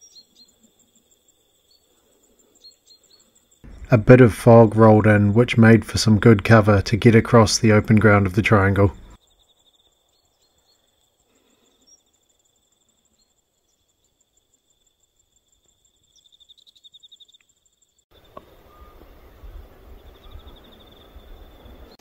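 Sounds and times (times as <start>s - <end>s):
insects trilling: 0.0s - 3.8s, 9.2s - 18.8s, 20.0s - 21.9s.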